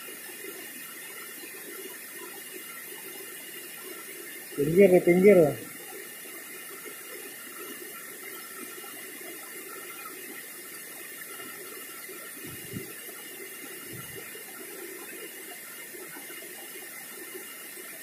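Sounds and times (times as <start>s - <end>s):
river water flowing over rocks: 0.0s - 18.0s
soft low thumps: 12.5s - 12.9s.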